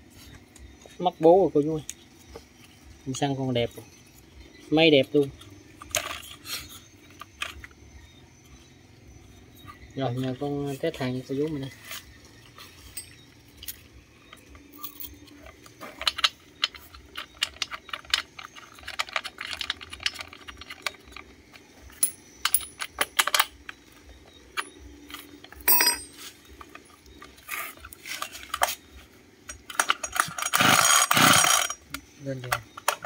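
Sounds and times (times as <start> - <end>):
metallic clicks and clinks: 12.4 - 28.8, 29.4 - 33.0
tools set down on hard floor: 25.6 - 26.3.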